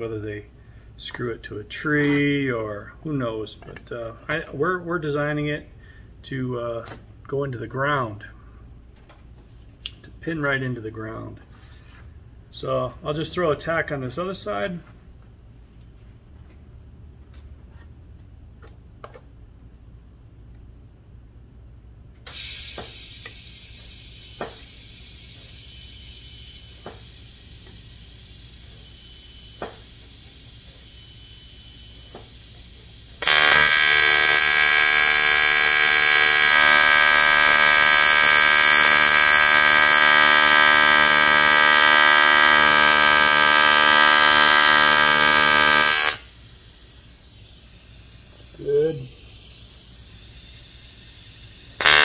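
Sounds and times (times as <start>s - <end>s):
faint hiss: 22.3s - 33.2s, 46.1s - 51.8s
welding arc buzzing: 22.3s - 52.0s.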